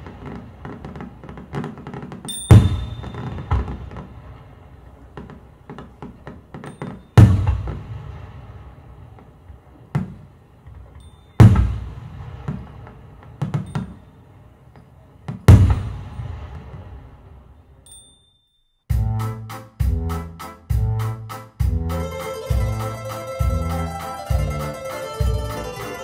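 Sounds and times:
deep drum strikes: 0:02.5 - 0:04.1, 0:07.2 - 0:08.4, 0:15.5 - 0:16.8.

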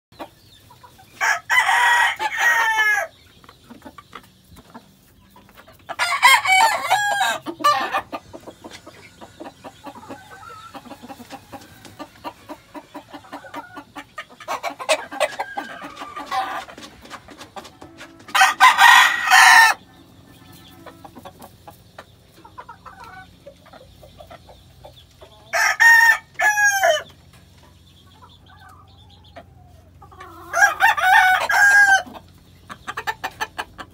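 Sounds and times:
rooster crowing: 0:01.2 - 0:03.1, 0:06.0 - 0:07.9, 0:15.1 - 0:16.6, 0:18.1 - 0:19.8, 0:25.5 - 0:27.0, 0:30.4 - 0:32.1
faint clucking: 0:07.4 - 0:18.4, 0:19.8 - 0:25.5.

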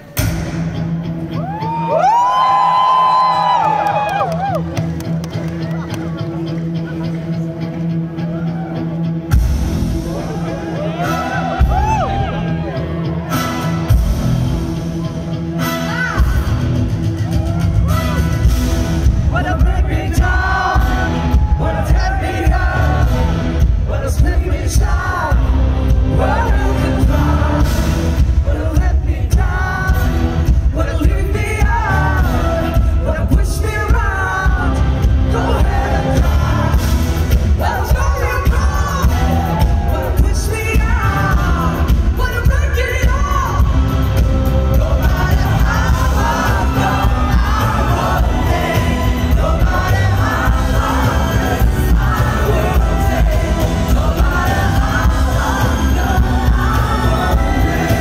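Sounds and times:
band with drums and heavy bass: 0:00.0 - 0:58.0
woman singing into a microphone: 0:37.6 - 0:43.8.

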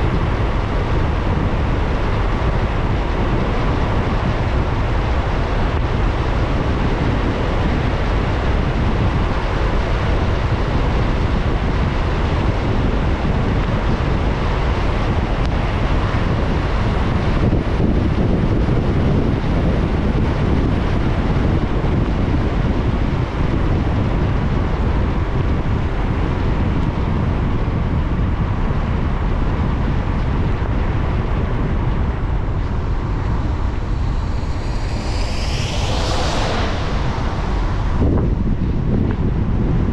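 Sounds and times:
car road rumble: 0:24.8 - 0:39.9
tyres hissing on wet road: 0:32.7 - 0:38.0.

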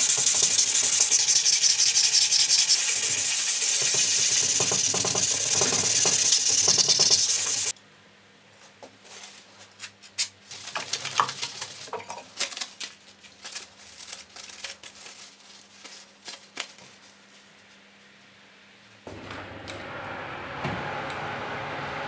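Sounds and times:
paper towel wiping blade: 0:00.0 - 0:07.7
sandpaper scratching on metal: 0:00.0 - 0:07.7.

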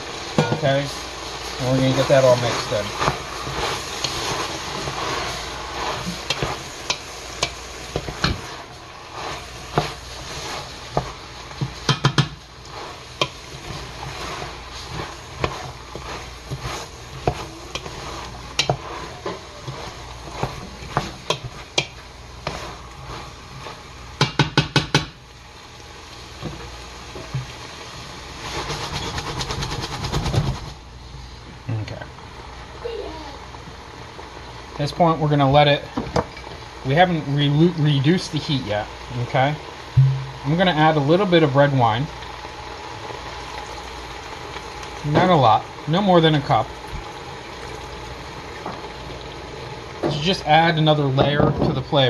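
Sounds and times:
food sizzling: 0:00.0 - 0:52.0
wooden spoon scraping a pot: 0:00.4 - 0:23.9, 0:28.4 - 0:30.6.

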